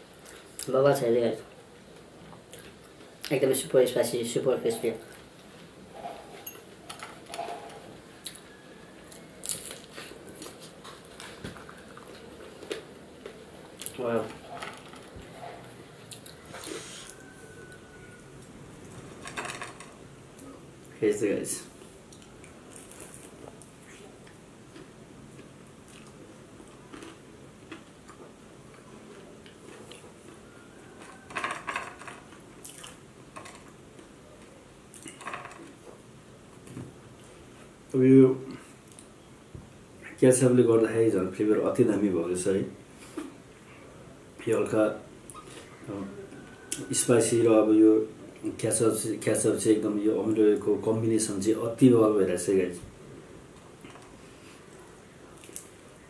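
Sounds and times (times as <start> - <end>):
chewing crispy food: 8.2 - 18.0, 21.8 - 31.3, 32.2 - 35.9, 53.8 - 56.0
person crunching fried food: 9.4 - 14.0, 22.5 - 23.9, 24.7 - 28.2.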